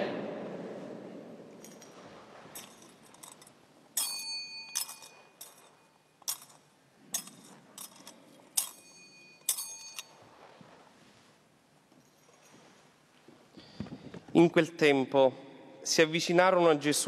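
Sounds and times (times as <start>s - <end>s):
censer chains clinking: 1.5s - 10.8s, 11.8s - 13.1s.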